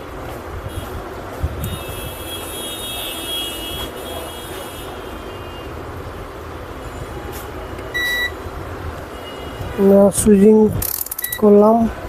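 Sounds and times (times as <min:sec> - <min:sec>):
steady background noise: 0:00.0 - 0:12.0
short electronic beep: 0:07.9 - 0:08.4, 0:11.2 - 0:11.5.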